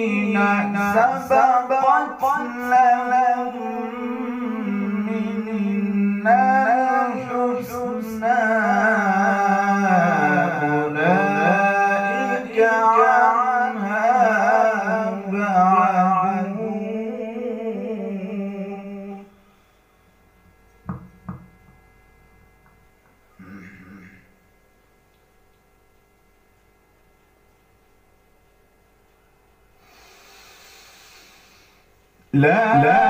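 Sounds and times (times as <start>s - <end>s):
man reciting melodically: 0.0s - 19.3s, 32.3s - 33.0s.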